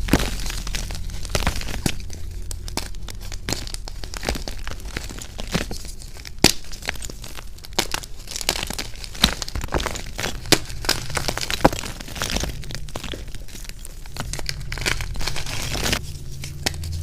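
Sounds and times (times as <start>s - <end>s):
chalk crunching by hand: 0.0s - 17.0s
chalk pieces snapping: 0.0s - 17.0s.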